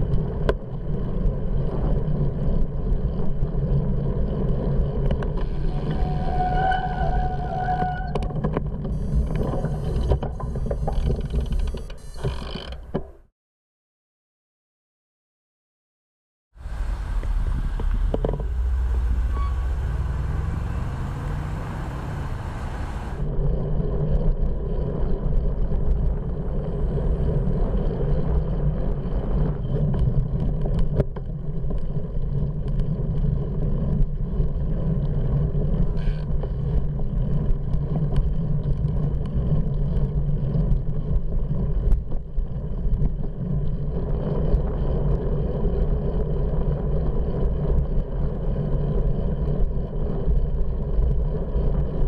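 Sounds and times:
wind and road noise: 0.0s - 13.2s, 16.6s - 52.0s
car engine pulling away: 16.6s - 23.2s.

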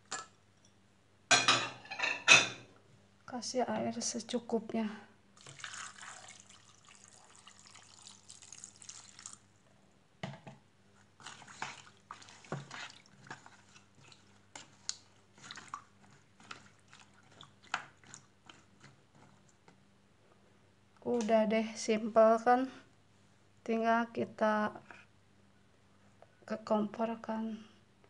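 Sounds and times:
water pouring into saucepan: 5.4s - 9.5s, 11.2s - 14.3s
water sloshing: 11.2s - 19.4s.

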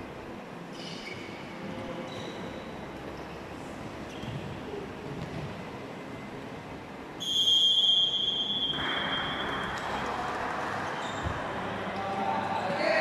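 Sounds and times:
referee's whistle blast: 7.2s - 9.7s.

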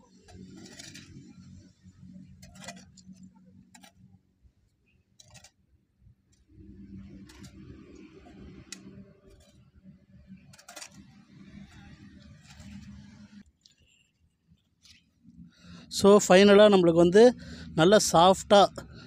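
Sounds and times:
metal hoe chopping soil: 0.0s - 1.6s, 2.3s - 4.0s.

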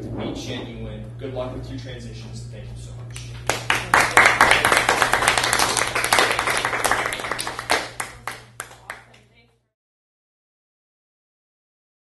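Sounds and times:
audience applauding: 3.4s - 9.1s.

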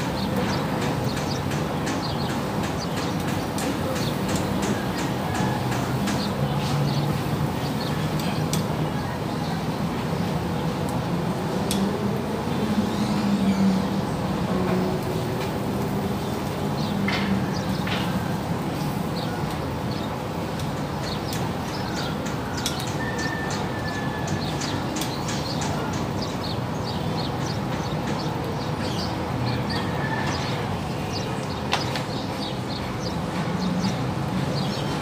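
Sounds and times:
fish sizzling and crackling on grill: 12.6s - 25.4s.

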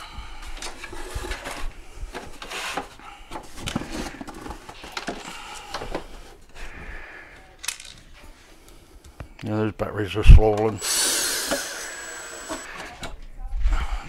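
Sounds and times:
parts clicking and scraping on workbench: 12.4s - 13.2s.

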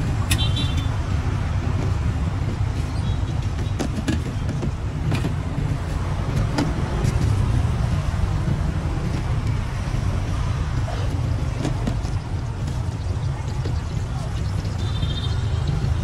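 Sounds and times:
street traffic rumble: 0.0s - 16.0s
light handling clicks and knocks: 0.2s - 10.2s, 10.8s - 15.0s.

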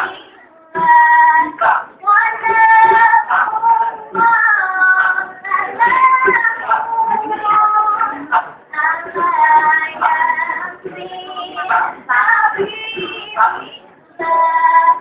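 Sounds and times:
girl singing a cappella: 0.0s - 15.0s.

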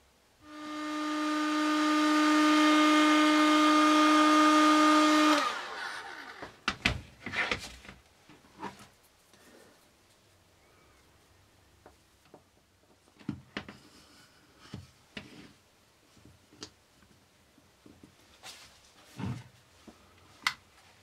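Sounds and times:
heat gun humming: 0.4s - 6.6s.

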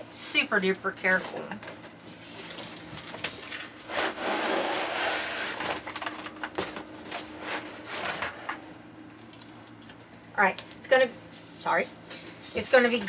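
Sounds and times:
cardboard flaps scraping: 3.8s - 5.9s.

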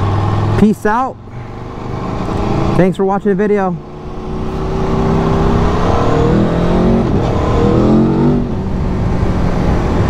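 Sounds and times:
motorcycle engine revving: 0.0s - 10.0s
steady rushing noise: 0.0s - 10.0s.

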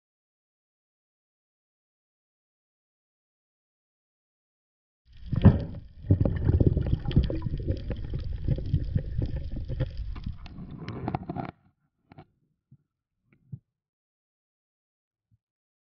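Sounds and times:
underwater low rumble: 5.1s - 11.4s.

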